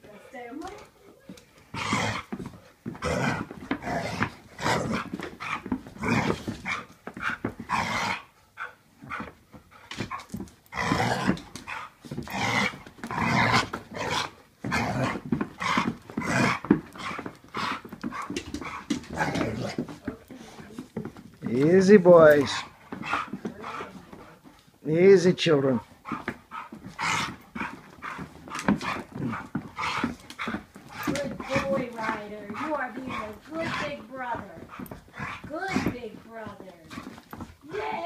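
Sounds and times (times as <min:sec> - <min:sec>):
dogs scuffling: 0:00.0 - 0:38.0
dogs vocalizing: 0:00.1 - 0:21.2, 0:22.3 - 0:24.8, 0:25.8 - 0:37.6.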